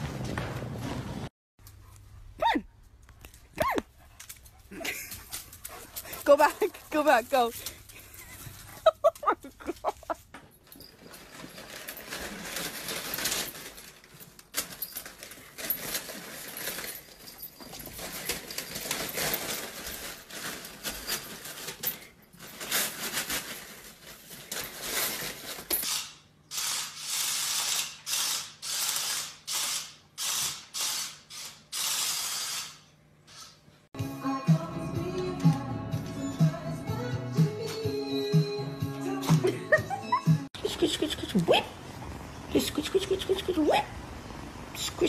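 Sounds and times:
paper crinkling and rustling: 10.9s - 25.7s.

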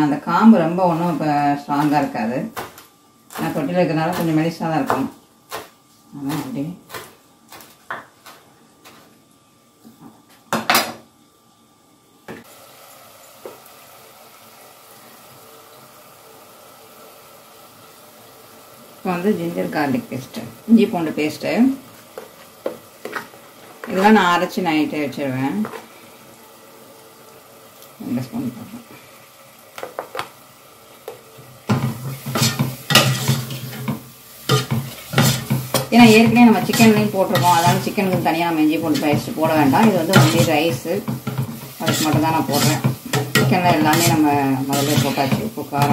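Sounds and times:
sauce sizzling in a pot: 0.0s - 9.9s, 11.1s - 45.9s
spoon scraping steel pot: 32.2s - 38.1s, 38.8s - 45.9s.

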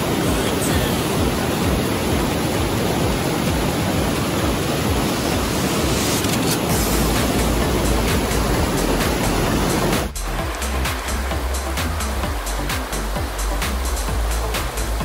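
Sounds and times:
river rapids roaring: 0.0s - 15.0s
deep rumble: 6.6s - 15.0s.

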